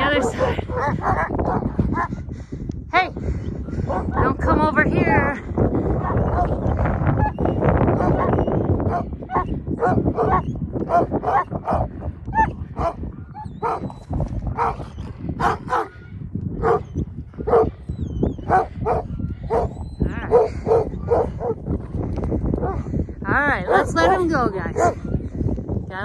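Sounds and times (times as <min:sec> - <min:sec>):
dogs barking: 0:00.0 - 0:02.1, 0:03.8 - 0:04.4, 0:06.0 - 0:14.0, 0:14.6 - 0:16.0, 0:16.6 - 0:17.7, 0:18.4 - 0:21.7, 0:23.6 - 0:25.0.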